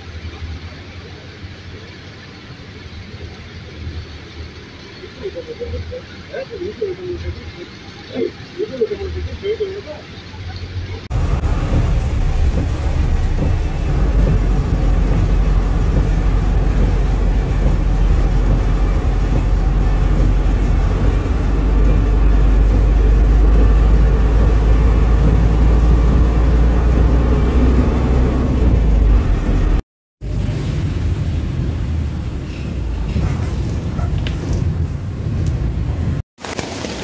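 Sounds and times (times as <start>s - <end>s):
heavy rain: 0.0s - 37.0s
truck engine and road rumble: 0.0s - 37.0s
windscreen wipers: 11.1s - 36.2s.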